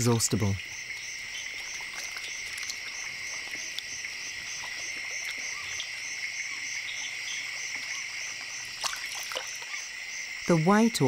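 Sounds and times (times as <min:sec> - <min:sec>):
insect chorus drone: 0:00.0 - 0:11.0
pulsing insect call: 0:00.0 - 0:11.0
faint ticks: 0:00.9 - 0:03.9.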